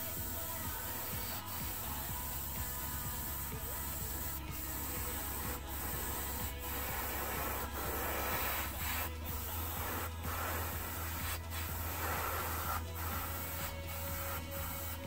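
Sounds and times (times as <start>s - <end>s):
airbrush spraying hiss: 0.0s - 15.0s.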